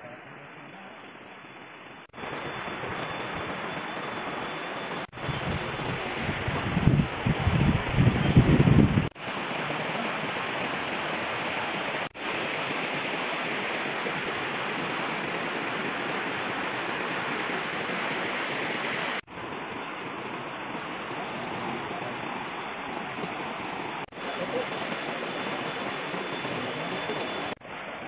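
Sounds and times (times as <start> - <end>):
river rushing over rapids: 8.7 - 28.0.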